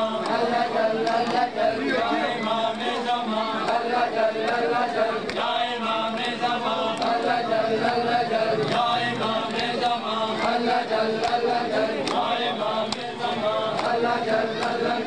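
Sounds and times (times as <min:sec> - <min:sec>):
people chanting in unison: 0:00.0 - 0:15.0
hands slapping chests: 0:11.2 - 0:12.3.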